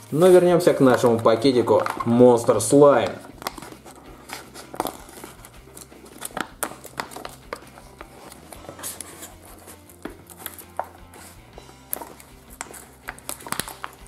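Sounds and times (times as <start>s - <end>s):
plastic pouch crinkling and tearing: 3.1s - 7.5s, 11.9s - 14.0s.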